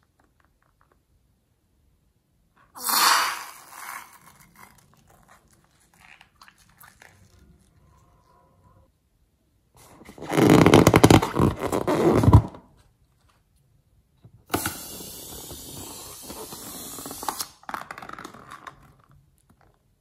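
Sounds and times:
hissing squelch of slime: 2.8s - 7.5s, 14.6s - 17.6s
slime squelching and crackling: 2.8s - 8.1s.

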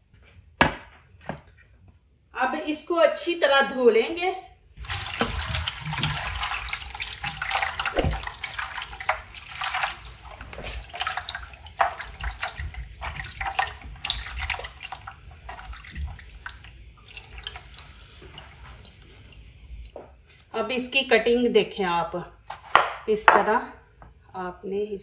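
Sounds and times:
water splashing: 4.8s - 19.9s.

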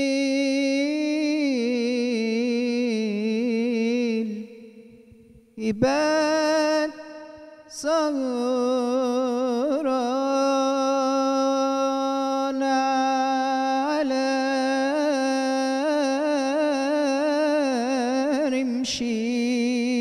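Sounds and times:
man singing unaccompanied: 0.0s - 4.9s, 5.6s - 20.0s.

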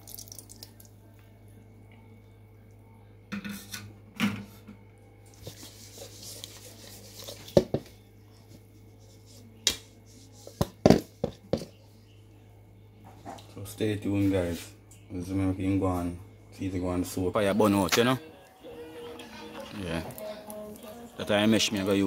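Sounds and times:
hands rubbing wet fish: 5.4s - 7.6s.

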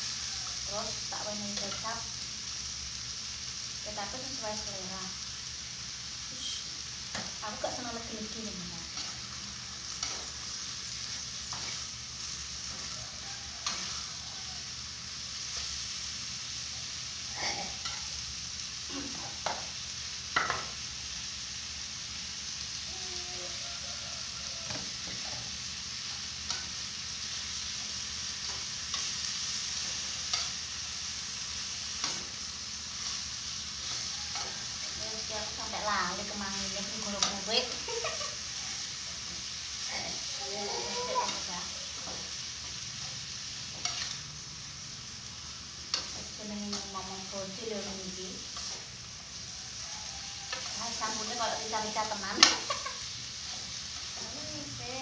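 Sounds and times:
chicken sizzling in a pan: 0.0s - 55.0s
spatula scraping and knocking pan: 20.3s - 20.8s, 40.6s - 44.2s.

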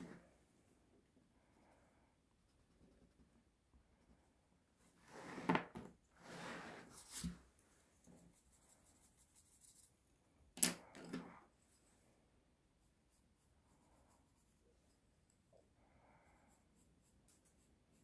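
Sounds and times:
rustling and handling noises: 5.4s - 8.2s.

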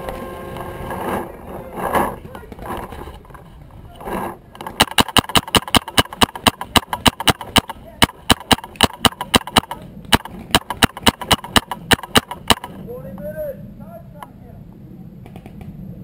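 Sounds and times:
paintball marker firing: 4.6s - 12.8s.

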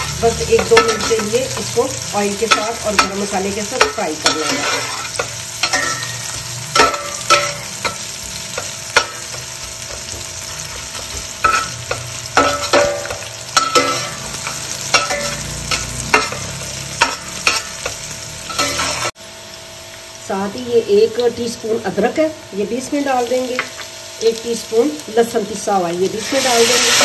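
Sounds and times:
onions sizzling in oil: 0.0s - 27.0s
metal spatula scraping pot: 2.4s - 8.0s, 10.7s - 17.9s, 18.5s - 19.1s.

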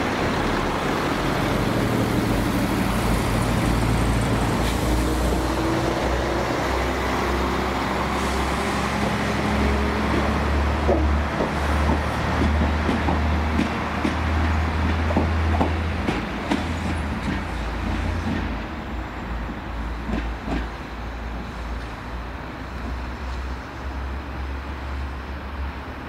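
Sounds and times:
train wheels knocking over rail joints: 10.0s - 18.6s.

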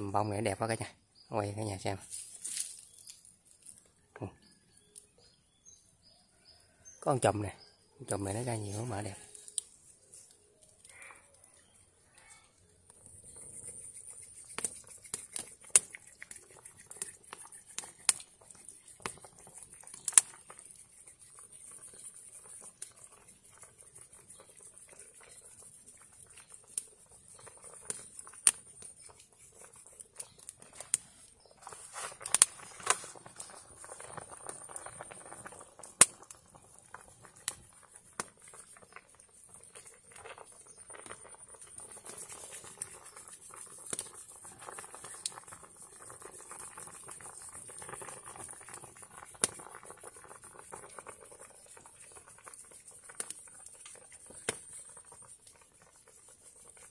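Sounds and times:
broth boiling in a pan: 6.1s - 56.9s
wood fire popping and crackling: 12.9s - 56.9s.

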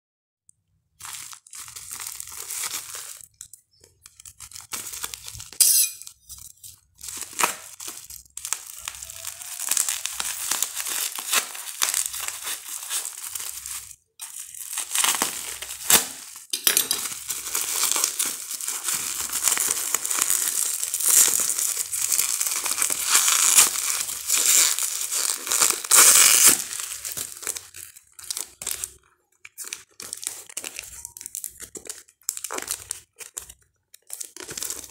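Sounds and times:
bubble wrap crinkling: 0.8s - 34.9s
parcel torn open: 1.0s - 34.9s.

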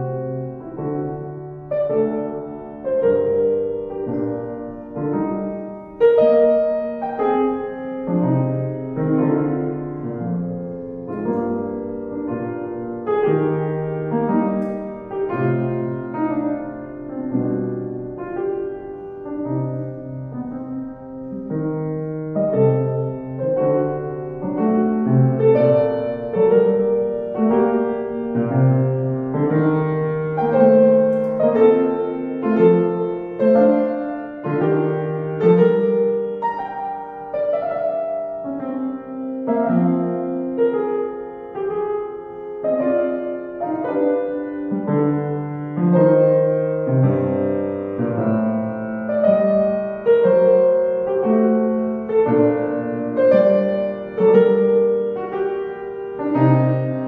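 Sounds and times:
upright piano classical piece: 0.0s - 57.0s.

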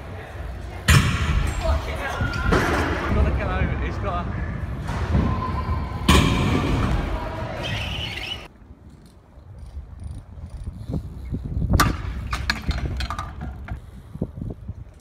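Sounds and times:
bike tyres rolling on concrete: 1.5s - 15.0s
bike knocking and clattering: 6.0s - 14.0s.

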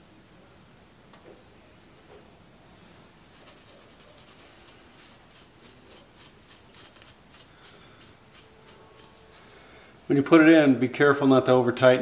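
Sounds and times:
scouring pad scratching metal rod: 3.3s - 9.5s.

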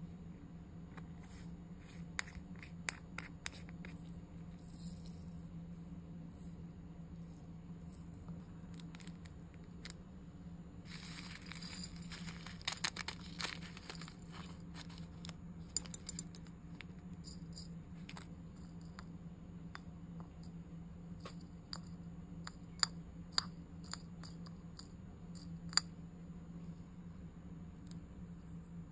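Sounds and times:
plastic bag crinkling: 10.9s - 15.2s.

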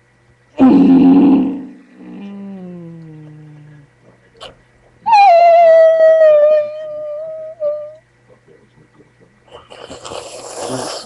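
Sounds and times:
boy howling: 5.1s - 8.0s.

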